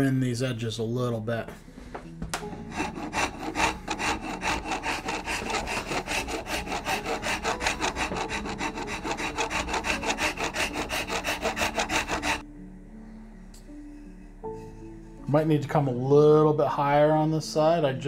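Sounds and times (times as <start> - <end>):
file rasping over wood: 2.7 - 12.4.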